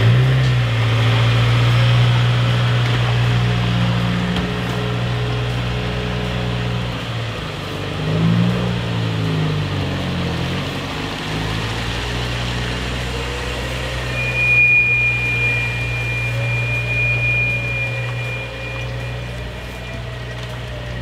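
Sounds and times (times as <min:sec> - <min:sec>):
high-pitched tone: 0:13.1 - 0:21.0
rain falling: 0:18.0 - 0:21.0.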